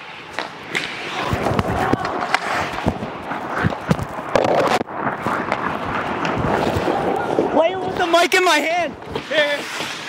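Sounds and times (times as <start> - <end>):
skates scraping ice: 0.0 - 10.0
hockey sticks clacking on puck: 0.3 - 4.8.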